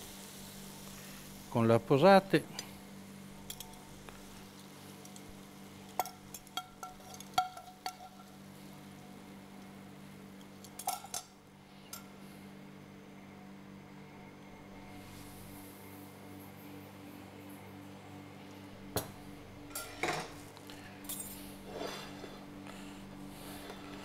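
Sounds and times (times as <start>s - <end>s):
faint steady hum: 0.0s - 24.0s
cutlery clinking on pan and plate: 19.7s - 20.4s.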